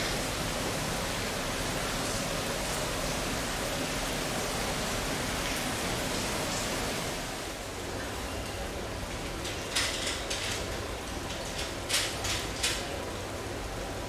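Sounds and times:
heavy rain hissing: 0.0s - 9.4s.

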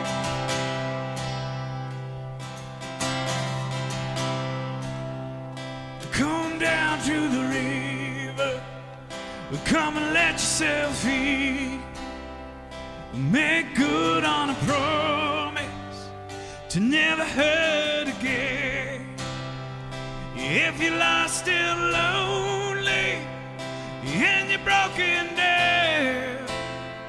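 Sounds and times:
acoustic guitar: 0.0s - 27.0s
man singing: 6.0s - 27.0s.

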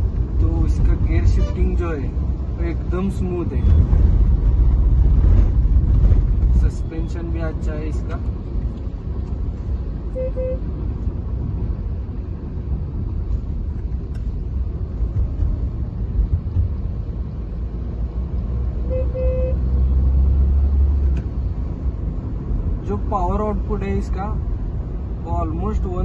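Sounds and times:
car engine and road rumble: 0.0s - 26.0s
short beeps: 10.2s - 10.6s, 18.9s - 19.6s.

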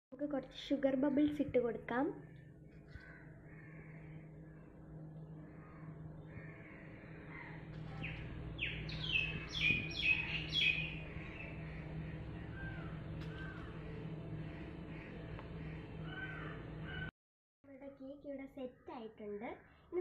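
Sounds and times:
low steady hum: 0.1s - 17.1s
faint bird calls: 2.2s - 17.1s
crow cawing: 2.8s - 4.7s, 5.4s - 17.1s.

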